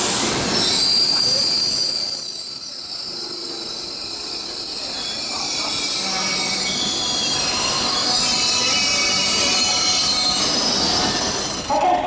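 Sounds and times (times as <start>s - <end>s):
train wheels squealing: 0.0s - 11.8s
train rolling: 0.0s - 12.0s.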